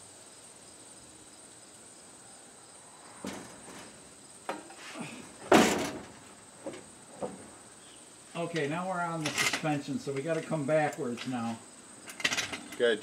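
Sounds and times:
crickets chirping: 0:00.0 - 0:13.0
loud metal clunk: 0:03.2 - 0:07.6.

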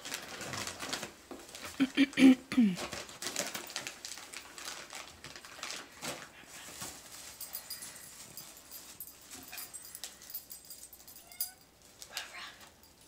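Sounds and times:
plastic wrapping crinkling: 0:00.0 - 0:13.0
faint dog noises: 0:09.3 - 0:12.9.

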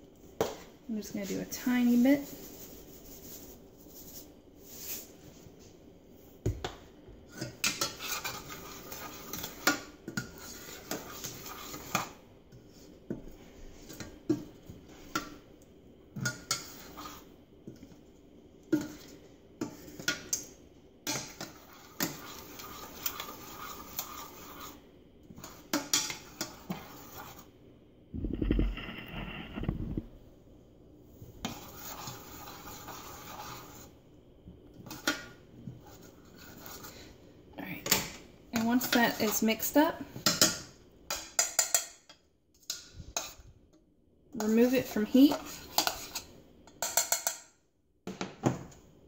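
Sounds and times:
spatula scraping saucepan: 0:01.0 - 0:05.2, 0:07.3 - 0:15.3, 0:16.2 - 0:17.3, 0:21.0 - 0:27.5, 0:31.4 - 0:34.0, 0:34.8 - 0:37.2, 0:38.6 - 0:42.0, 0:42.6 - 0:43.5, 0:44.4 - 0:47.4
low rumble: 0:28.1 - 0:30.2.

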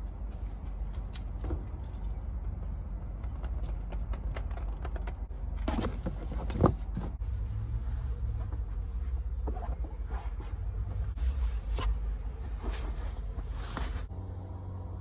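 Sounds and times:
low steady rumble: 0:00.0 - 0:15.0.

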